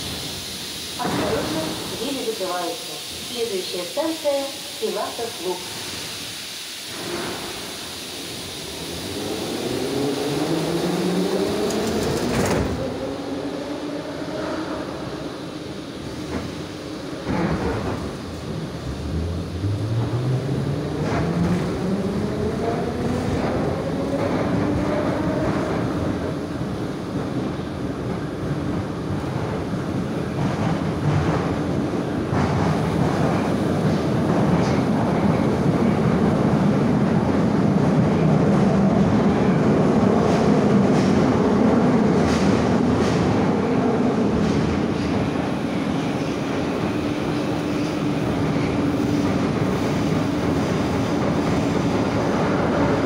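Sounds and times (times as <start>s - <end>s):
train running rumble: 6.9s - 53.0s.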